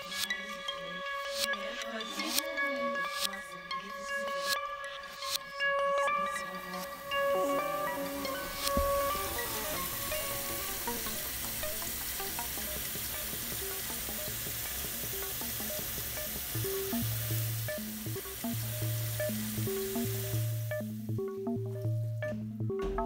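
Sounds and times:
background music: 0.0s - 23.0s
tap water filling plastic jug: 7.8s - 20.6s.

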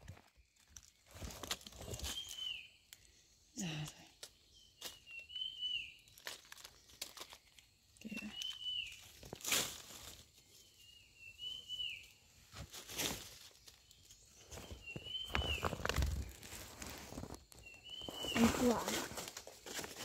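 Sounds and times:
dry leaves rustling and crackling: 0.0s - 3.1s, 5.8s - 10.8s, 12.4s - 20.0s
bird calling: 14.5s - 16.0s, 17.6s - 19.0s.

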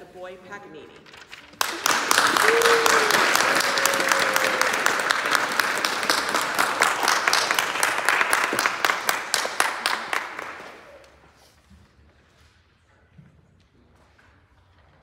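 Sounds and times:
audience applauding: 1.4s - 11.4s.

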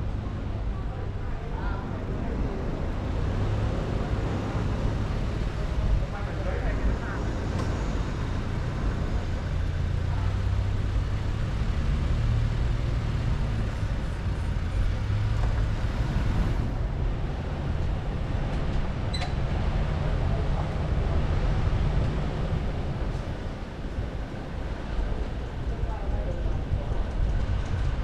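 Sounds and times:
vehicle and road rumble: 0.0s - 28.0s.

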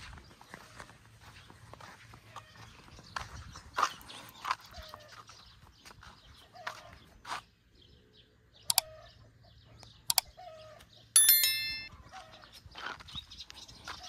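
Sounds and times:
sharp clicks: 10.1s - 10.3s
bell-like metallic ring: 11.2s - 11.9s.

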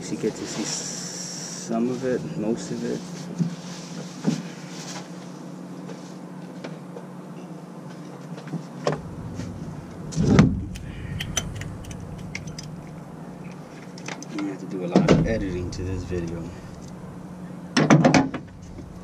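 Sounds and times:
steady low hum: 0.0s - 6.6s, 8.6s - 19.0s
loud thump: 8.9s - 10.8s, 15.0s - 15.5s.

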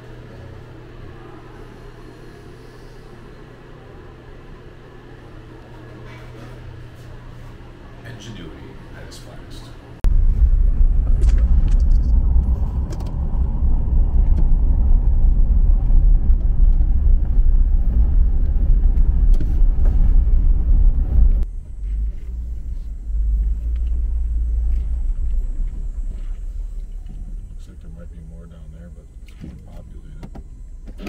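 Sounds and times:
road and wind noise: 10.0s - 27.7s
car rumbling on the move: 10.0s - 31.0s.

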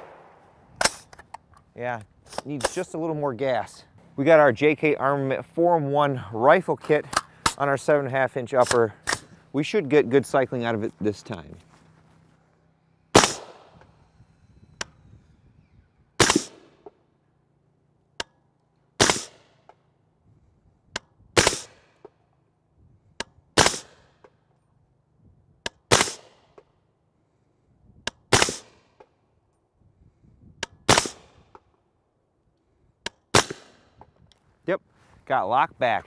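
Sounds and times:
suppressed gunshots: 0.0s - 1.3s, 13.1s - 13.8s, 16.2s - 17.0s, 19.0s - 19.8s, 21.4s - 22.2s, 23.6s - 24.4s, 25.7s - 26.7s, 28.2s - 29.1s, 30.8s - 31.6s, 33.0s - 34.0s.

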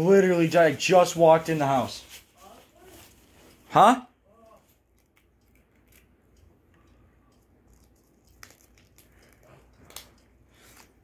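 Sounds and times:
plastic packet clicks and rustles: 7.6s - 11.0s.

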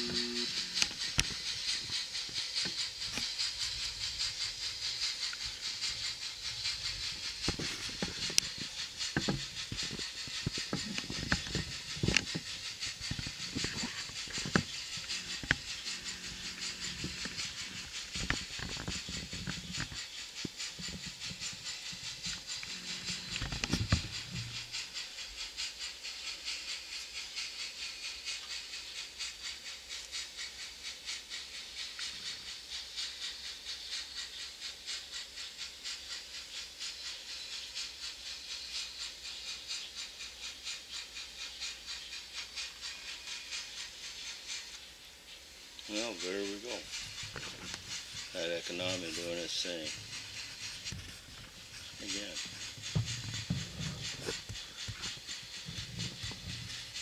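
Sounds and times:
low hum: 0.0s - 1.2s
model steam locomotive chuffing: 0.0s - 57.0s.

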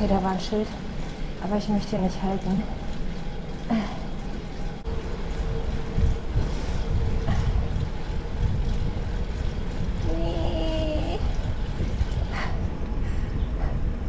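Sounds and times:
bike tyres rolling on asphalt: 0.0s - 14.0s
wind rushing over microphone: 4.9s - 14.0s.

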